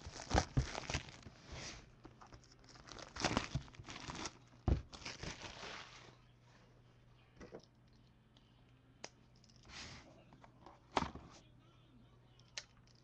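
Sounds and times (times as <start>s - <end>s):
plastic wrap tearing and crackling: 0.0s - 1.3s, 2.2s - 6.0s.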